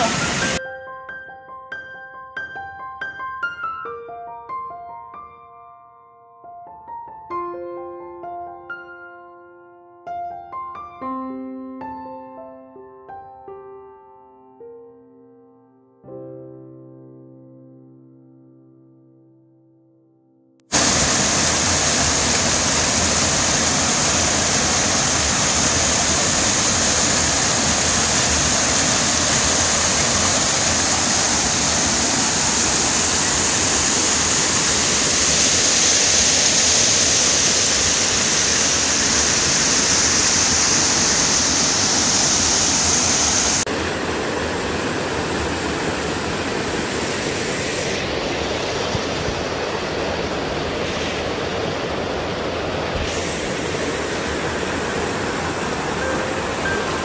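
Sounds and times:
waterfall cascading over rocks: 0.0s - 0.6s, 20.7s - 57.0s.

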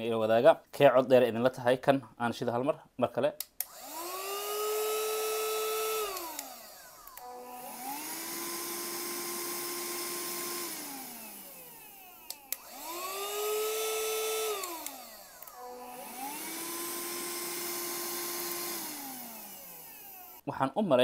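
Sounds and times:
higher-pitched vacuum cleaner whine: 3.7s - 20.4s
lower-pitched vacuum cleaner whine: 3.7s - 20.4s.

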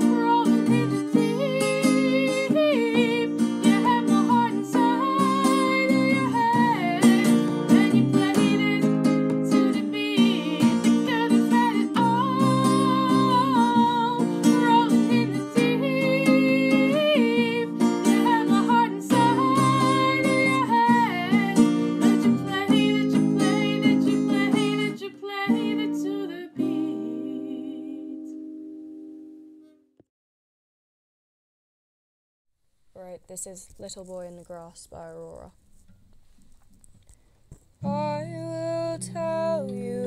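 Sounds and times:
girl singing a pop song: 0.0s - 28.4s, 37.8s - 40.0s
acoustic guitar chords: 0.0s - 30.0s, 37.8s - 40.0s.

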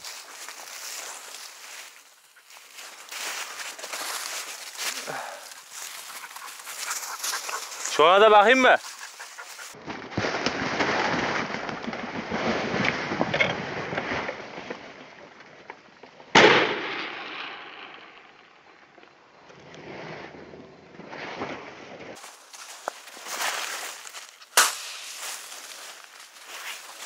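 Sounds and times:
footsteps rustling through vines: 0.0s - 9.8s, 22.2s - 27.0s
shotgun shot: 16.4s - 17.9s, 24.6s - 25.0s.

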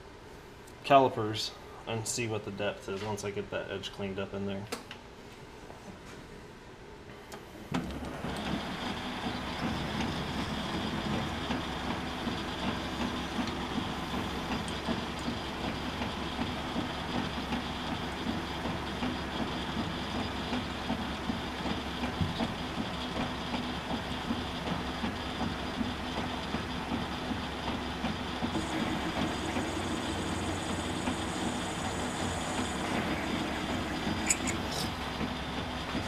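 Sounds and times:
metal lathe running: 8.2s - 36.0s
steady high whine: 28.5s - 35.2s.

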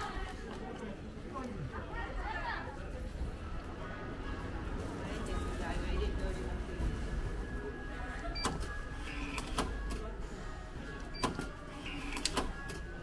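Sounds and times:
vending machine clicks: 8.4s - 10.0s, 11.1s - 12.9s.

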